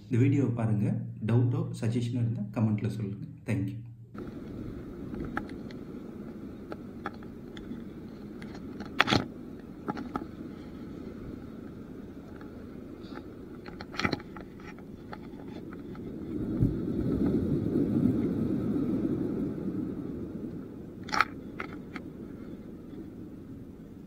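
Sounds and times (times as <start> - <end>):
wind and sea rumble: 0.0 - 24.0.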